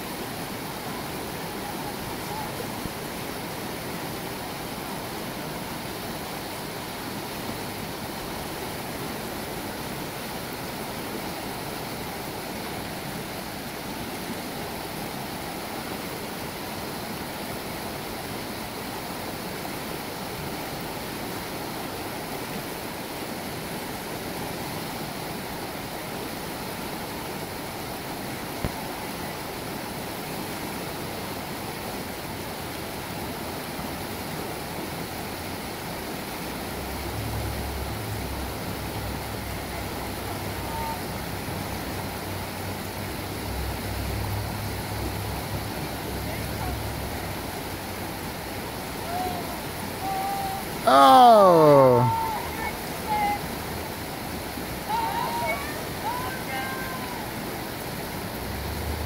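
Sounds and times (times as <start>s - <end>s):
river rushing over rocks: 0.0s - 59.0s.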